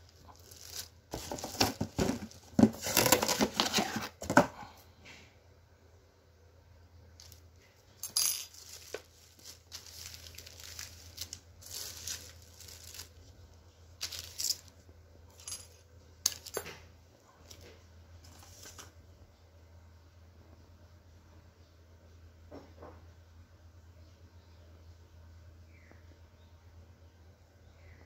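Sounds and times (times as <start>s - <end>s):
plastic bag crinkling: 0.0s - 4.0s, 8.3s - 14.8s.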